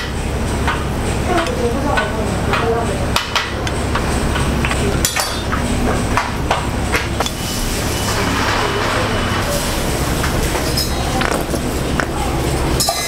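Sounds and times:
low stall hum: 0.0s - 12.9s
rice mold knocking and scraping: 10.2s - 12.4s.

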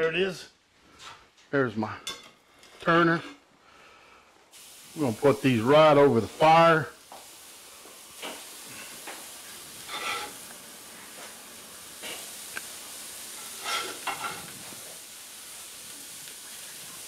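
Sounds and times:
burger patties sizzling on grill: 4.5s - 17.0s
metal turner scraping and tapping: 9.9s - 10.4s, 13.6s - 14.5s.

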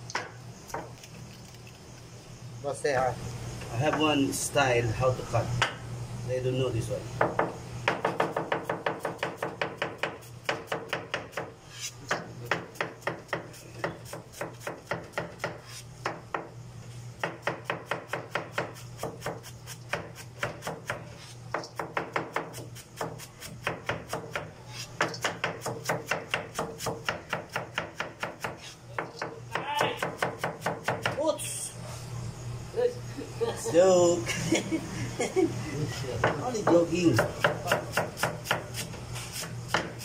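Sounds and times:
knife chopping cabbage on board: 7.4s - 11.5s, 12.1s - 16.2s, 17.2s - 31.2s, 36.7s - 40.0s.

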